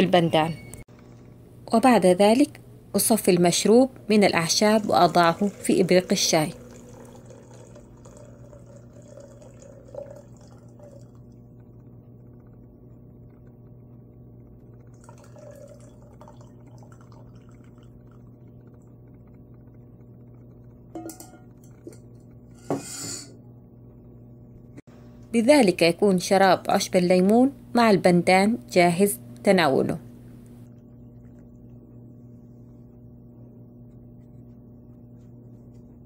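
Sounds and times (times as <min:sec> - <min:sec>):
steady low hum: 0:00.0 - 0:36.0
liquid pouring trickle: 0:04.7 - 0:11.5, 0:14.8 - 0:18.9.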